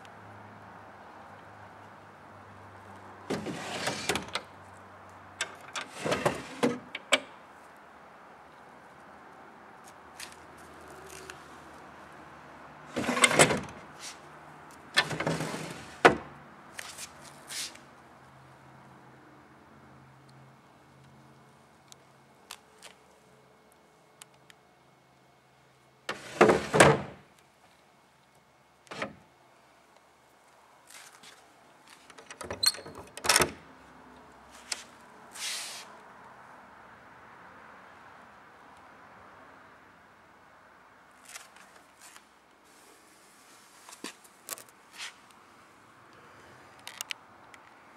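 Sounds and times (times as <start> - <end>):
wooden drawer sliding: 3.3 - 4.3, 5.8 - 6.9, 12.9 - 13.8, 15.0 - 16.3, 26.1 - 27.2
metal latch clicks: 32.1 - 33.6.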